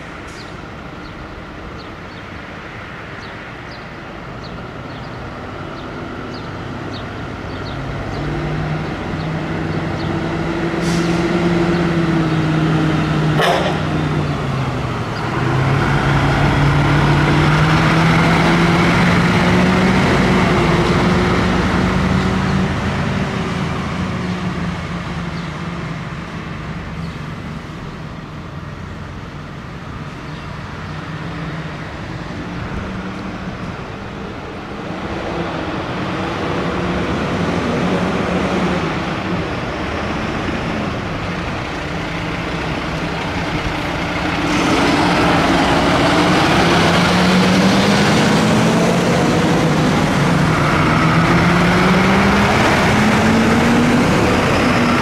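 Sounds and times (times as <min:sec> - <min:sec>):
fire engine diesel engines: 0:00.0 - 0:55.0
truck engine revving: 0:05.3 - 0:55.0.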